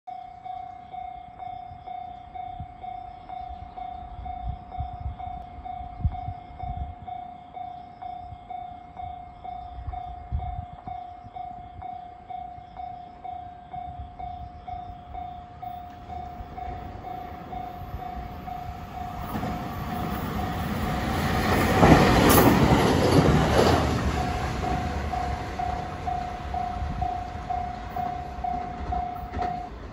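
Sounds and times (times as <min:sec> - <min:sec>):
level-crossing alarm dinging: 0:00.1 - 0:29.9
train wheels rumbling on rails: 0:01.4 - 0:29.9.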